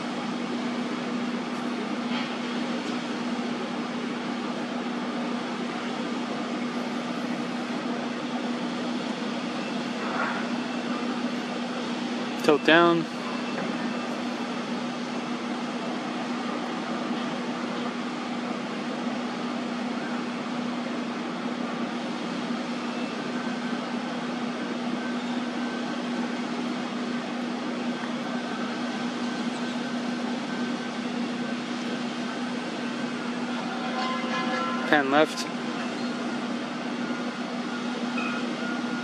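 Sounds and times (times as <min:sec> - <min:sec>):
machine hum: 0:00.0 - 0:39.0.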